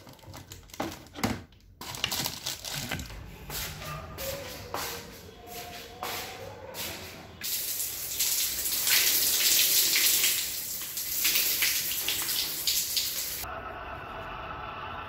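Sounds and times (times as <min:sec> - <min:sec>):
water splashing on concrete floor: 0:07.4 - 0:13.5.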